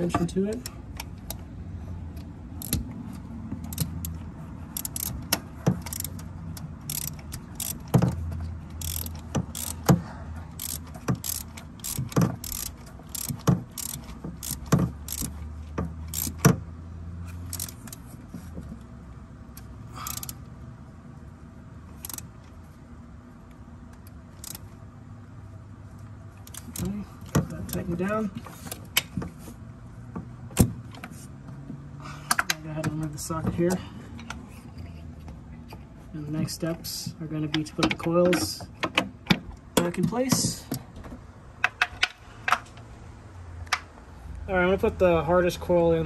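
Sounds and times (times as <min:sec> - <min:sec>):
ratchet wrench clicking: 0:02.6 - 0:02.9, 0:03.6 - 0:15.4, 0:16.0 - 0:16.5, 0:17.4 - 0:18.0, 0:20.0 - 0:20.4, 0:22.0 - 0:22.3, 0:24.4 - 0:24.7, 0:26.4 - 0:27.0.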